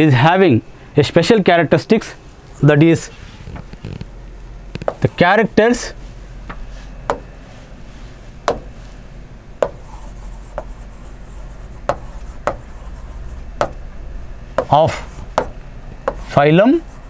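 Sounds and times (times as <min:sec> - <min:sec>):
low electrical hum: 0:00.0 - 0:17.0
chalk tapping on blackboard: 0:04.8 - 0:05.1, 0:06.5 - 0:07.3, 0:08.5 - 0:08.7, 0:09.6 - 0:13.8, 0:14.6 - 0:16.4
chalk rubbing strokes: 0:09.6 - 0:13.8, 0:14.6 - 0:17.0.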